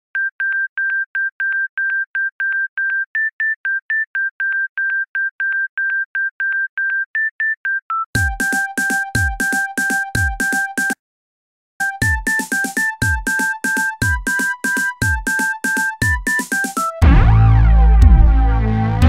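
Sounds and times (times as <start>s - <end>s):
music: 8.2s - 11.0s, 11.8s - 19.0s.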